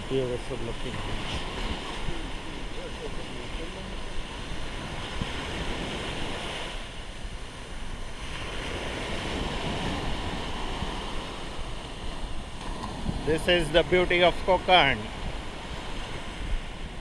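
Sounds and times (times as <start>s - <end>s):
sea waves washing up shore: 0.0s - 17.0s
wind buffeting microphone: 0.0s - 17.0s.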